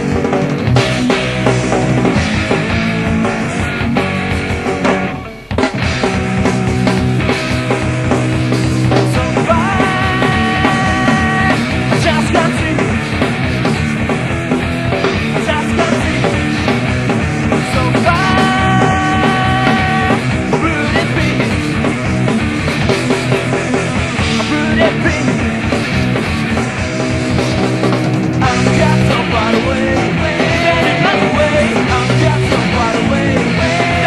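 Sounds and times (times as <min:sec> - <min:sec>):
punk rock band playing: 0:00.0 - 0:34.0.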